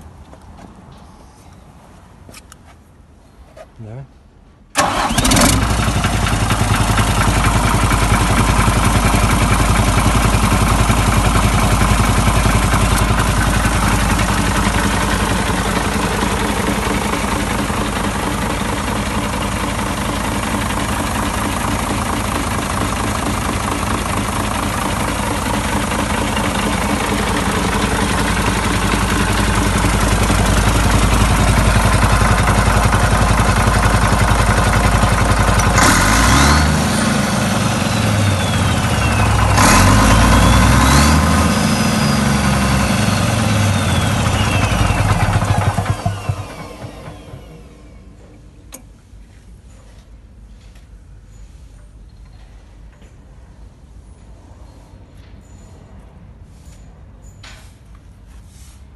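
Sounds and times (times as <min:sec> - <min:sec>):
diesel engine idling and revving: 0:04.7 - 0:48.6
high turbo whine: 0:04.8 - 0:48.8.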